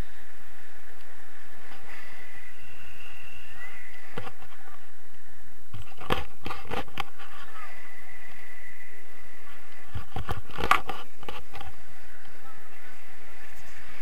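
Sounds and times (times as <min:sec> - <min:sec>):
gusts buffeting microphone: 0:00.0 - 0:14.0
wind rushing over microphone: 0:00.0 - 0:14.0.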